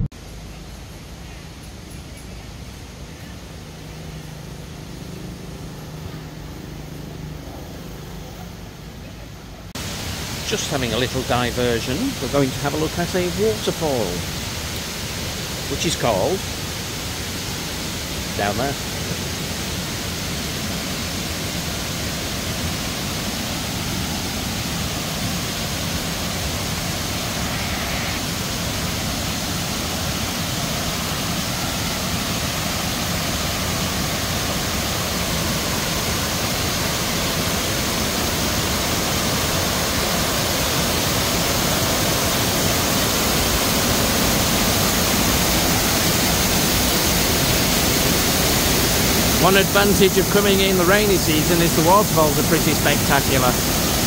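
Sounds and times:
waterfall rushing over rocks: 9.7s - 54.0s.

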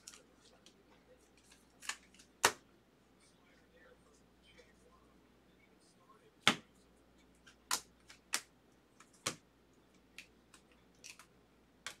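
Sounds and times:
cards clicking off a stack: 1.4s - 2.6s, 7.5s - 9.4s, 10.2s - 11.3s.

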